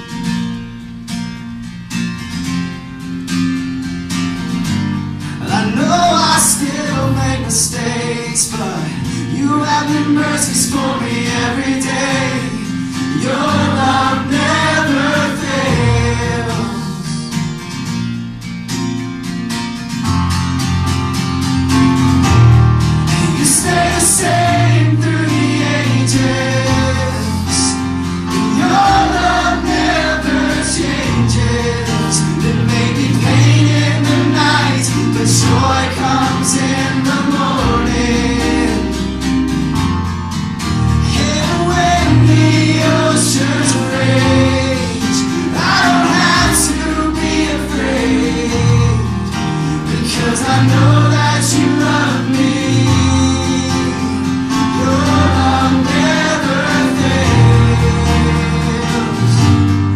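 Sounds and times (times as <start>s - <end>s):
band playing worship song: 2.3s - 59.9s
many voices singing together: 5.4s - 17.4s, 23.1s - 39.5s, 41.0s - 59.9s.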